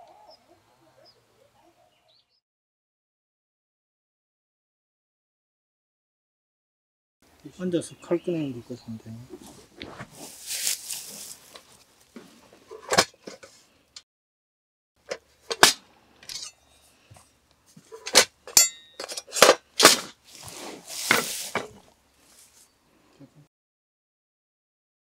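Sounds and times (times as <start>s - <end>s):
soft rustling: 9.3s - 12.6s, 20.2s - 22.8s
metallic clink: 16.2s - 16.8s, 18.5s - 19.5s.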